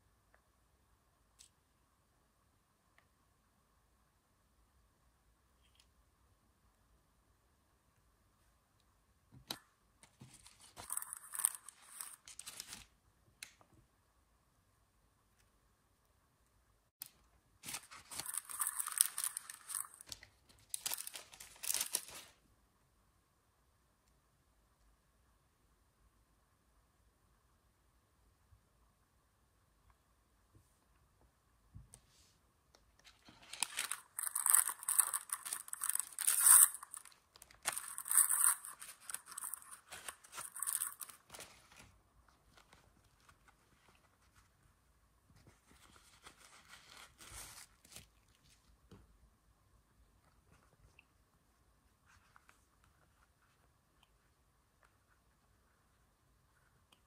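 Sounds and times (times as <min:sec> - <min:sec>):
plastic foil pouch crinkling: 0:17.6 - 0:22.4, 0:33.1 - 0:41.8.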